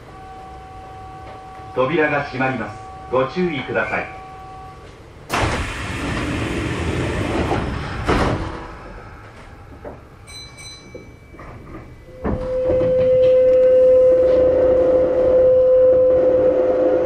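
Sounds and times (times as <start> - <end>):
train doors shutting knock: 10.7 - 14.5.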